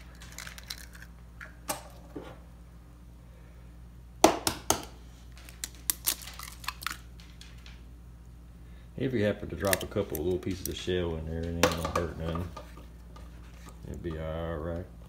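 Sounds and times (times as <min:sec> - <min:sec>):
eggshells cracking: 0:00.0 - 0:01.6, 0:05.4 - 0:07.8, 0:09.5 - 0:12.0.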